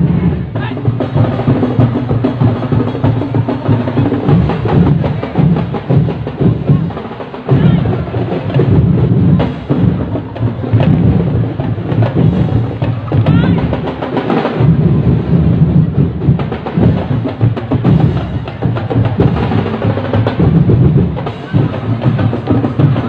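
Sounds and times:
drum ensemble playing driving rhythm: 0.0 - 23.0
wood-block-like strikes: 7.5 - 13.7.

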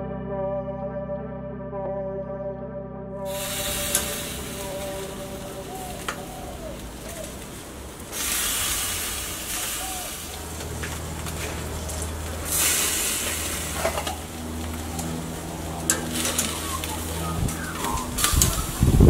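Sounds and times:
low steady hum: 0.0 - 19.0
food sizzling on a grill: 3.3 - 17.0, 17.7 - 19.0.

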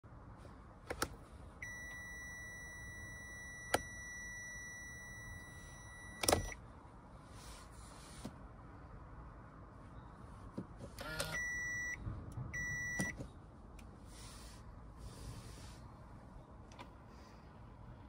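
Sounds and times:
high warning beep: 1.6 - 6.6, 11.2 - 12.0, 12.6 - 13.2.

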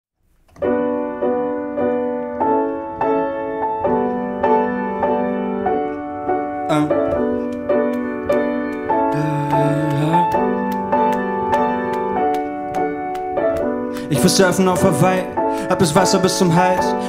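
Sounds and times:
upright piano chords: 0.3 - 17.0.

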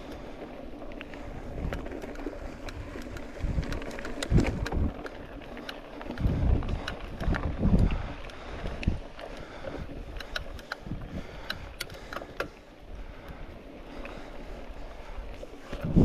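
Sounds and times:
wind buffeting microphone: 0.0 - 16.0
sharp clicks and rattles: 1.0 - 12.6.

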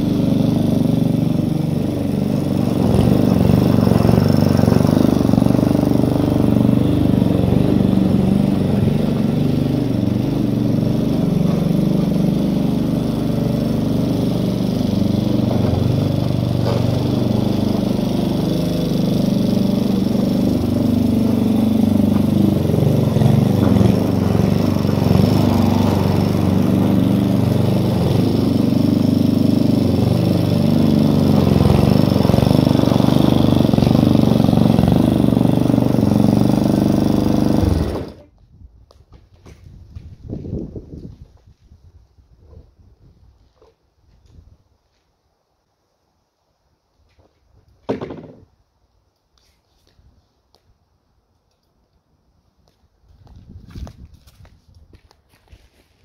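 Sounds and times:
lawn mower engine running: 0.0 - 38.4, 47.8 - 48.4.

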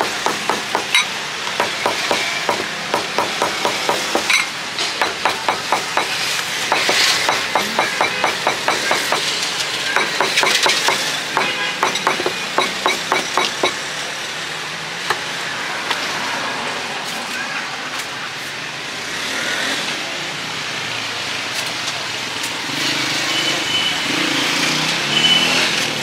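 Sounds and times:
knife chopping on cutting board: 0.0 - 1.0, 1.6 - 4.3, 5.0 - 9.3, 10.0 - 13.8
street traffic noise: 0.0 - 26.0.

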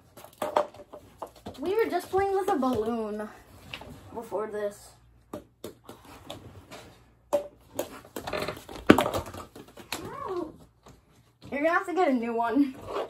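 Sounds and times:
balls knocking plastic cups: 0.0 - 3.0, 5.2 - 6.4, 7.3 - 10.1
balls bouncing on wooden floor: 0.0 - 3.3, 5.2 - 12.0.

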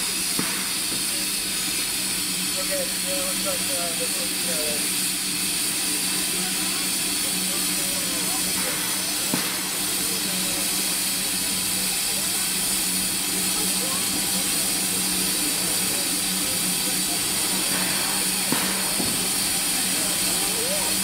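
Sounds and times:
steam hissing: 0.0 - 21.0
steam locomotive idling: 0.0 - 21.0.

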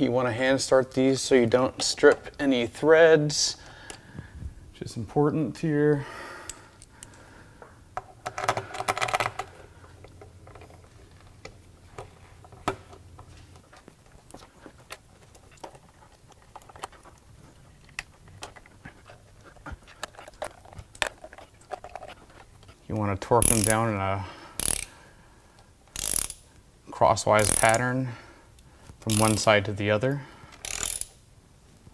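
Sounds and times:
bolts clicking and tapping: 6.4 - 23.9.

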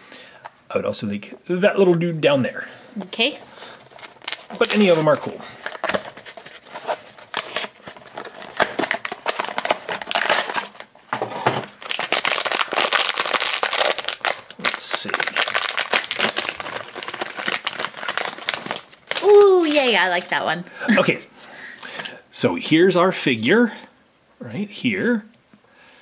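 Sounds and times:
foil bag crinkling and tearing: 3.2 - 20.6
cardboard box being opened: 3.9 - 12.0.

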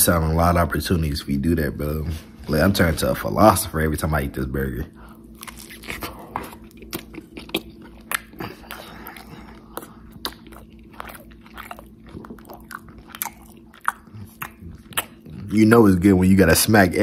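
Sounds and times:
person chewing with lip smacking: 5.0 - 15.6.

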